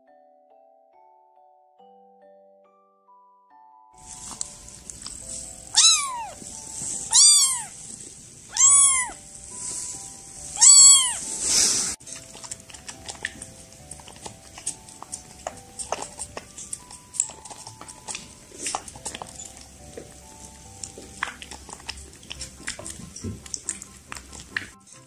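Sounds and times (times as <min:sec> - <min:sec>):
light background music: 0:00.0 - 0:25.0
kitten meowing: 0:05.7 - 0:06.4, 0:07.0 - 0:07.9, 0:08.5 - 0:09.2, 0:10.5 - 0:11.4.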